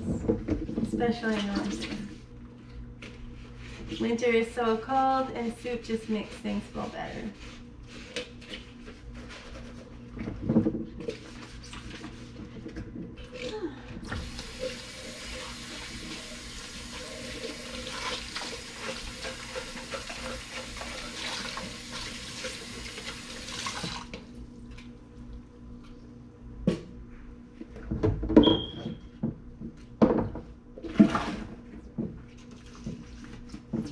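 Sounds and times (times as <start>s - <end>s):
faucet running into sink: 14.1s - 24.2s.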